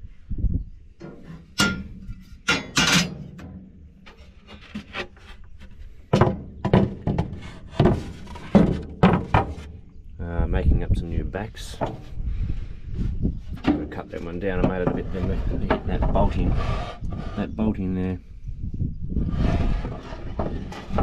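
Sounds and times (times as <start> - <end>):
wooden boards knocking: 6.1 - 9.7, 13.6 - 16.3
boards rubbing on steel: 6.9 - 9.7, 14.1 - 17.7, 19.2 - 21.0.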